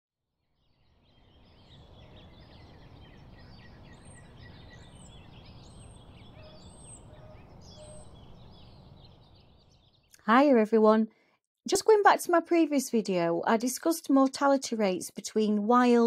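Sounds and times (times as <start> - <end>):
small birds chirping: 0.7 - 10.7
high bird call: 3.7 - 8.8.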